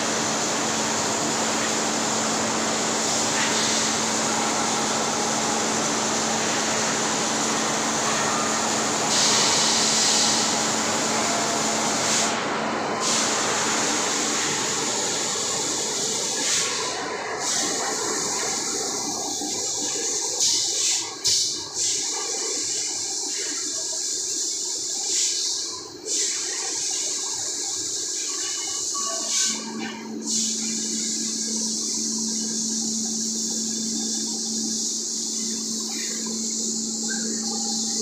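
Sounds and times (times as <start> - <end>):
sharp hiss: 13.0 - 38.0.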